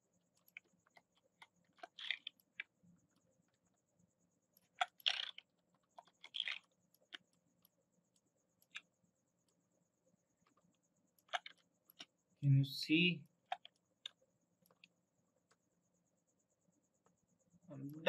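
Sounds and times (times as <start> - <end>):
mouse and keyboard clicks: 0.4 - 2.8, 4.6 - 7.8, 8.6 - 8.9, 11.2 - 12.2, 13.5 - 15.6.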